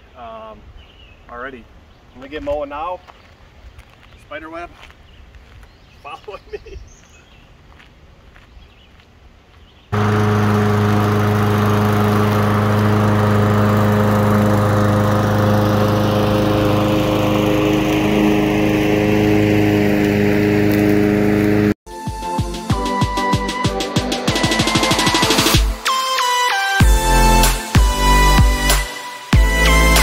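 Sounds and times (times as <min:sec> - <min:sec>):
lawn mower engine running: 0:10.0 - 0:21.8.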